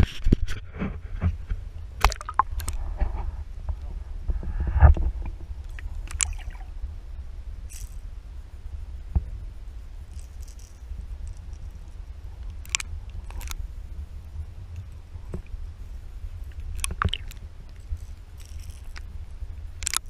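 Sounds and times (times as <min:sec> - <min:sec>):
underwater rumble of water: 0:00.9 - 0:10.1
sharp clicks and ticks: 0:05.6 - 0:06.6, 0:12.4 - 0:13.6, 0:16.5 - 0:19.0, 0:19.8 - 0:20.0.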